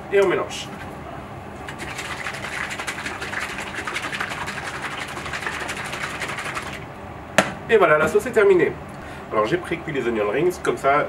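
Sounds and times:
sauce sloshing in squeeze bottle: 1.7s - 6.8s.

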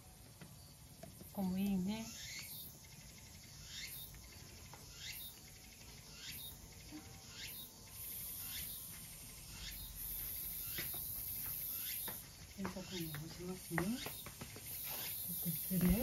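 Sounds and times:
high-pitched hiss: 2.8s - 16.0s.

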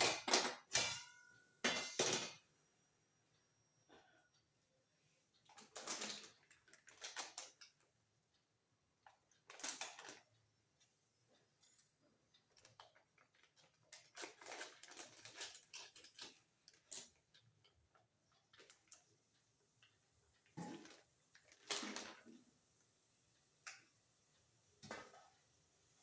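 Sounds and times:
kitchen utensils clicking and clattering: 0.0s - 2.4s, 5.5s - 7.9s, 9.3s - 10.3s, 12.5s - 17.8s, 20.4s - 22.4s.

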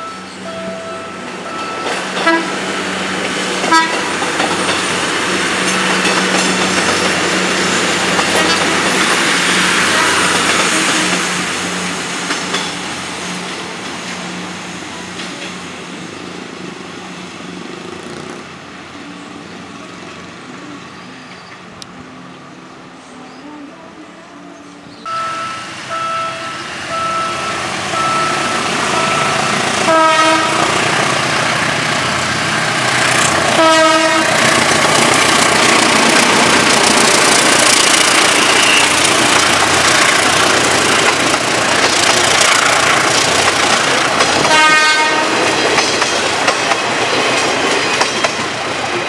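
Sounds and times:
train wheels rumbling on rails: 0.0s - 22.3s, 25.5s - 49.0s.

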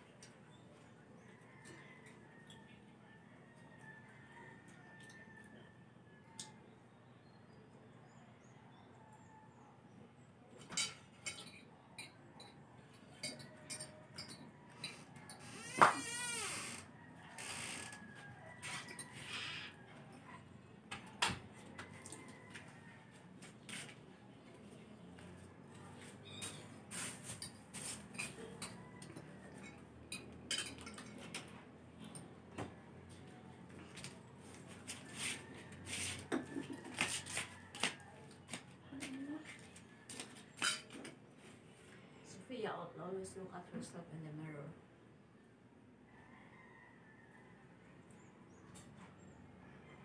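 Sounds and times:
tableware clinking: 10.6s - 15.4s, 27.3s - 32.3s.

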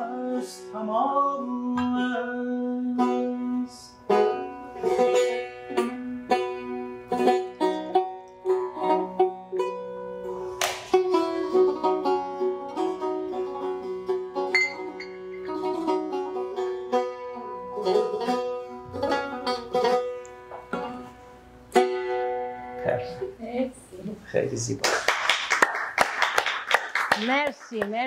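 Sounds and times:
long-necked lute playing: 1.7s - 23.3s.

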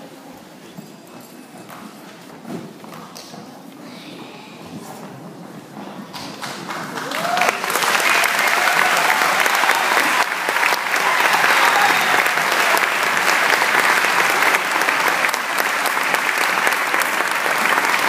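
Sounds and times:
audience clapping: 6.1s - 18.0s.

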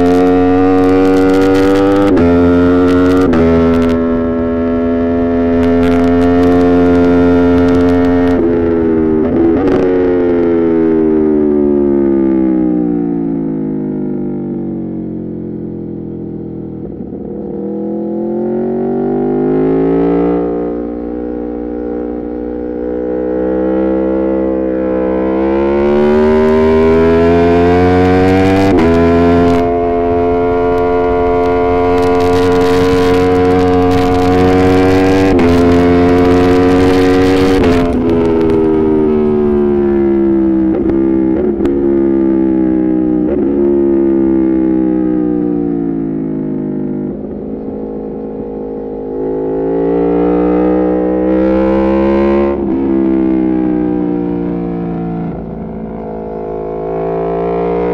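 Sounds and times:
motorcycle engine revving: 0.0s - 57.9s
wind noise: 25.0s - 44.1s.

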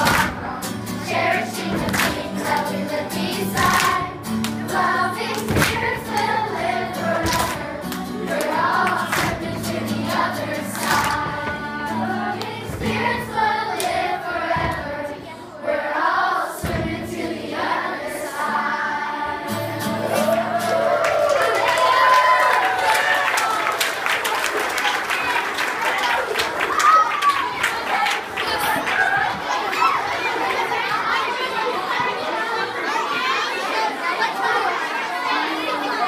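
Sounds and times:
hand claps: 0.0s - 0.4s, 1.8s - 2.7s, 3.5s - 4.6s, 7.3s - 9.5s, 10.7s - 11.2s
children singing: 0.0s - 21.0s.

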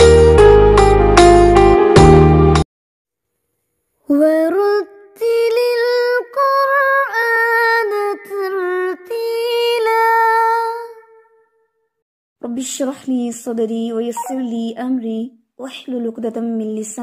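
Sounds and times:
high voice singing: 14.2s - 14.5s.

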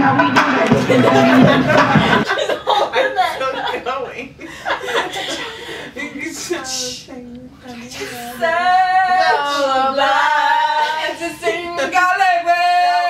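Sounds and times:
woman singing unaccompanied: 6.0s - 13.0s.

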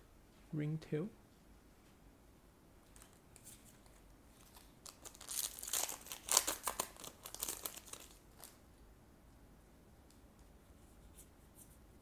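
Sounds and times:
foil pack tearing and crinkling: 4.4s - 8.6s.

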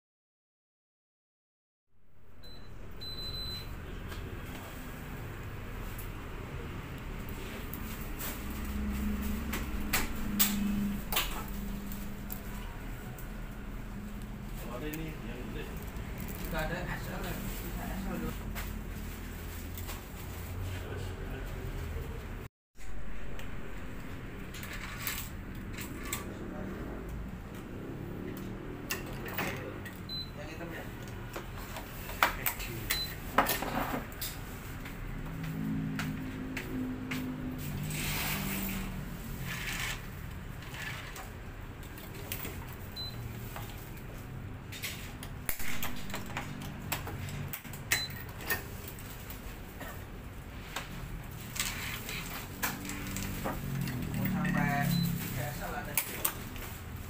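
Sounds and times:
string sliding rustle: 37.7s - 41.2s.

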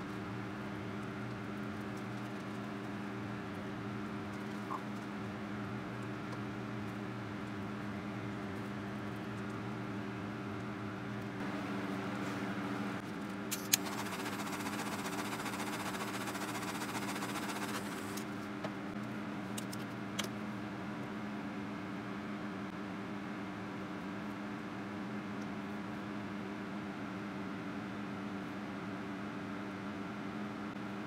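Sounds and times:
small electric motor humming: 13.8s - 18.2s.

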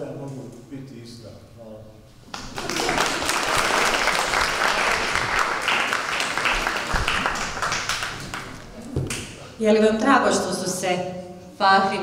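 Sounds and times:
audience applauding: 2.3s - 9.4s.

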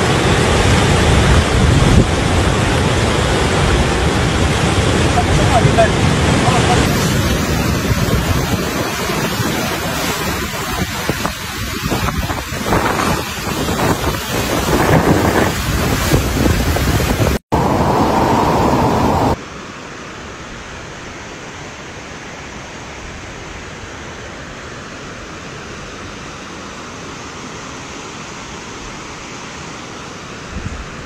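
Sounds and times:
rushing floodwater: 0.0s - 31.0s
wind buffeting microphone: 3.5s - 19.4s.

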